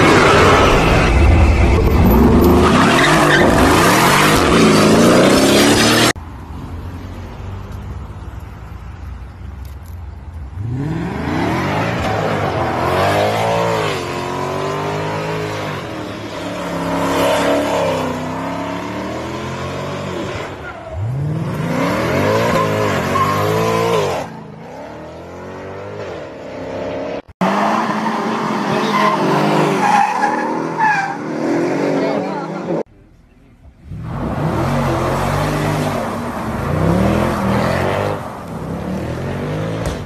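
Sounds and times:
tyres screeching: 27.8s - 31.7s.

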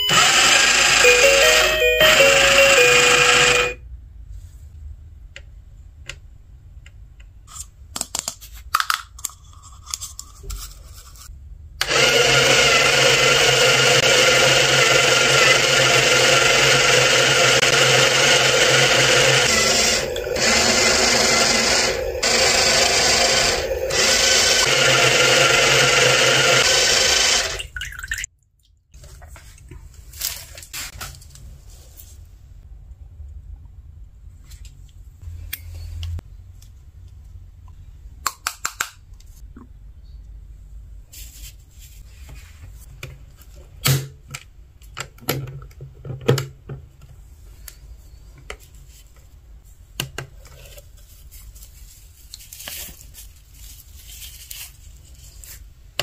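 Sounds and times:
small electric pump motor: 0.0s - 3.8s, 11.8s - 27.6s
toy electronic tune: 0.0s - 3.8s.

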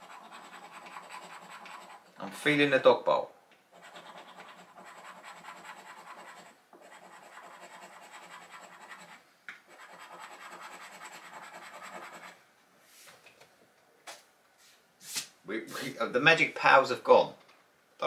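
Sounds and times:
scratchcard being scratched: 0.0s - 2.1s, 3.7s - 12.4s.

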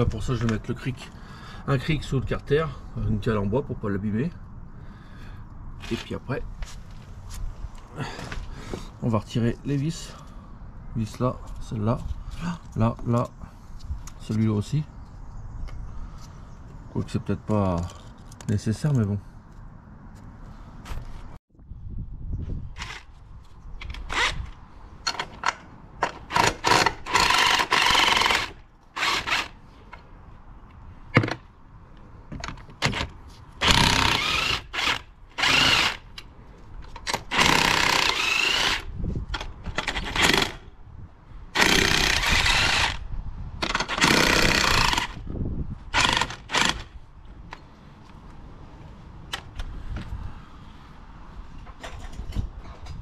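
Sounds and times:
cordless impact wrench running: 26.3s - 29.6s, 33.6s - 36.0s, 37.2s - 38.9s, 39.8s - 40.6s, 41.6s - 43.0s, 43.6s - 45.2s, 45.9s - 46.9s.

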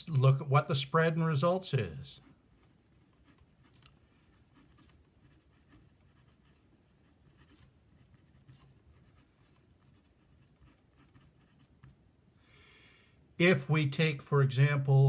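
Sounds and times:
pen scratching on paper: 2.2s - 11.9s.

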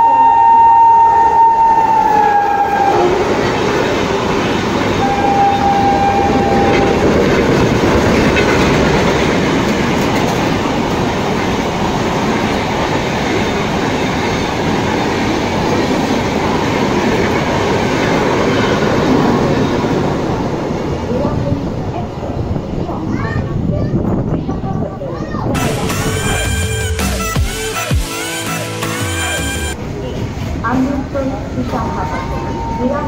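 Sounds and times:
train rumbling and clattering: 0.0s - 26.6s, 29.7s - 33.0s
steady high tone: 4.9s - 7.3s, 25.6s - 30.1s.

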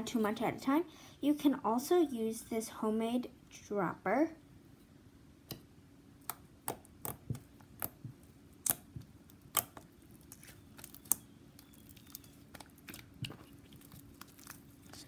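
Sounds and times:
sticky slime clicks and pops: 8.6s - 8.9s, 9.5s - 9.8s.

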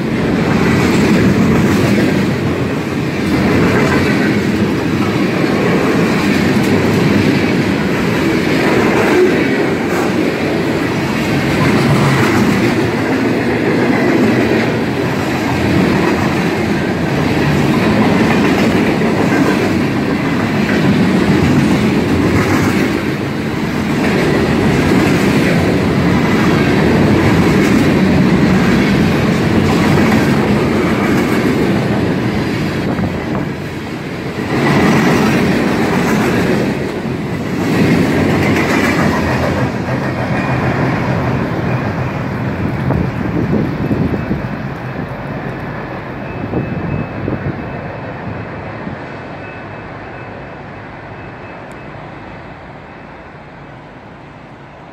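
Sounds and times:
freight train rumbling past: 0.0s - 54.9s
wheels clicking over rail joints: 0.4s - 45.8s.

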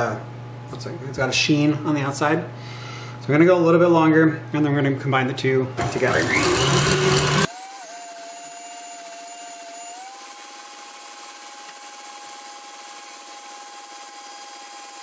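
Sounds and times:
stand mixer motor whine: 5.8s - 15.0s.

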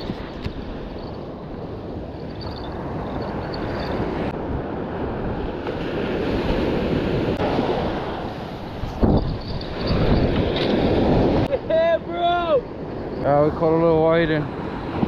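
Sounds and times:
ocean surf breaking: 0.0s - 15.0s
wind buffeting microphone: 0.0s - 15.0s.

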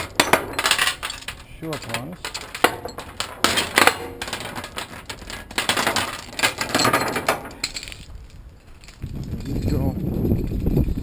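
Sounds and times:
chains clanking on metal deck: 0.0s - 8.1s.

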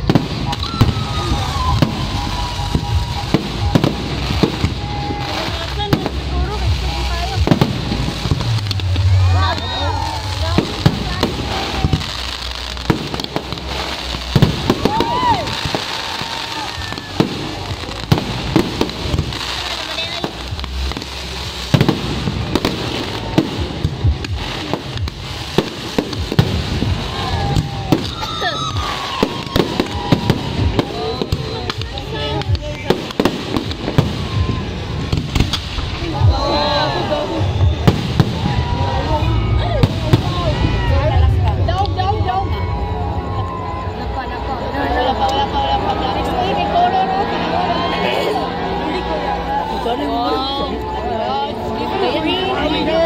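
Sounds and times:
crackling rumble: 0.0s - 47.6s
fireworks bangs: 0.0s - 51.0s.

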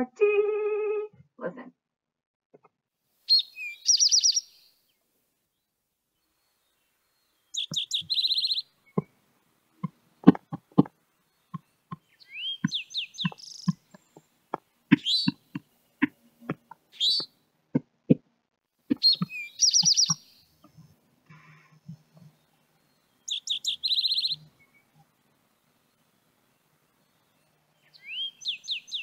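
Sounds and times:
sharp bird call: 3.3s - 4.7s, 16.9s - 17.3s
bird song with fast high trill: 3.3s - 4.9s, 6.3s - 9.0s, 11.2s - 13.8s, 15.0s - 15.4s, 16.9s - 17.3s, 19.0s - 20.5s, 22.7s - 24.9s, 27.0s - 29.0s.

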